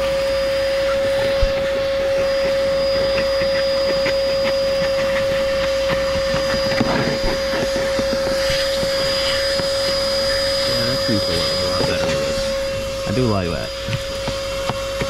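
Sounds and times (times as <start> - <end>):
handheld vacuum whining: 0.0 - 15.0
nozzle clicking and scraping: 2.2 - 10.5.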